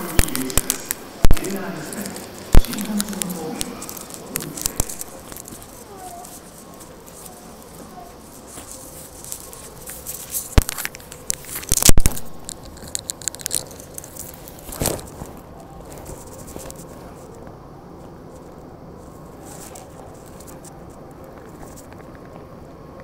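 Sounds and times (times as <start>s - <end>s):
loud burst: 0.0s - 5.8s
sharp clicks: 0.0s - 8.1s, 8.7s - 14.4s
low hum in subway car: 0.0s - 23.0s.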